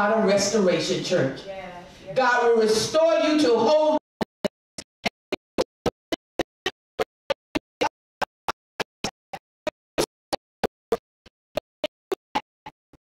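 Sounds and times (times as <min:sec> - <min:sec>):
stuttering audio glitch blips: 0:04.0 - 0:13.0.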